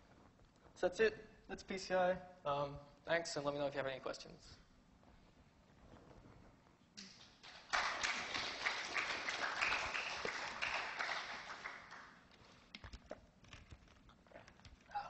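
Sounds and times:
audience applauding: 0:07.1 - 0:12.4.

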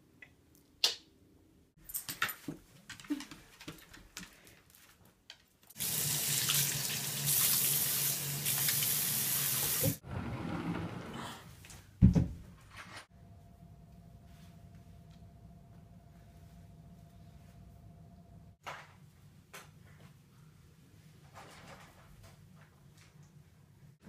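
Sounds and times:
tap water running into sink: 0:05.8 - 0:10.0.

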